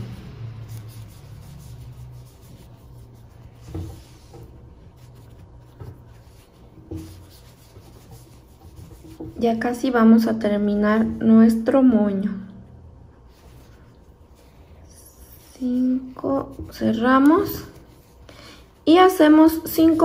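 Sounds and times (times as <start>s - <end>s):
yarn rubbing on crochet hook: 0.0s - 9.8s
low steady hum: 0.0s - 20.0s.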